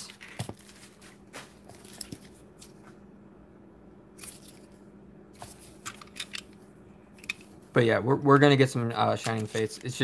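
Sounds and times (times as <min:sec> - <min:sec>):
faint steady hum: 0:00.0 - 0:10.0
cardboard rustling and tapping: 0:00.2 - 0:02.8.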